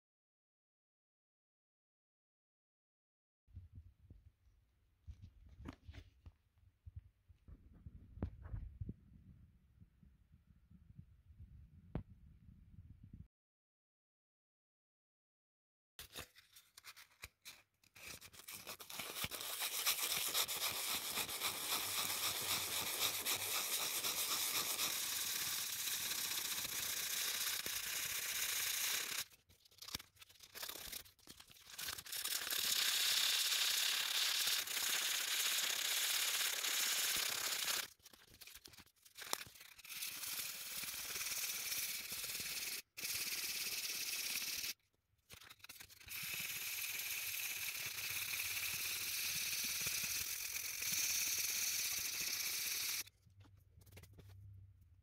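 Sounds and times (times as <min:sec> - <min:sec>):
emery paper sanding plastic: 0:16.0 - 0:53.1.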